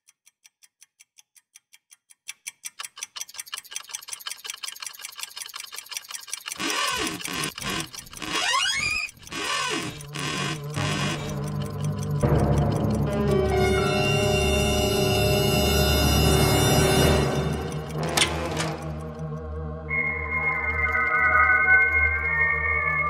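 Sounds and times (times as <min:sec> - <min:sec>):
fast clock-like ticking: 0:00.0 - 0:14.6, 0:17.0 - 0:19.6
eerie noisy music with glides: 0:09.8 - 0:23.0.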